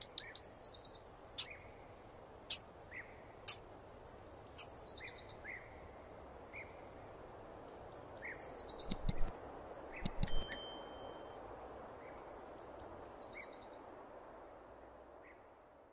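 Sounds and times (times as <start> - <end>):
robin singing: 0.0 - 1.7, 2.5 - 5.8, 9.9 - 11.4
outdoor hiss: 0.0 - 15.9
sharp clicks: 8.8 - 9.3, 10.0 - 10.6
bright ringing ding: 10.2 - 11.4.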